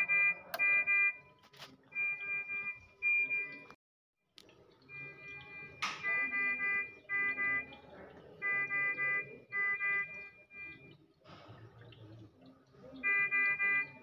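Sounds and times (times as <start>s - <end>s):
monitor alarm beeping: 0.0s - 3.8s, 4.8s - 11.1s, 12.9s - 14.0s.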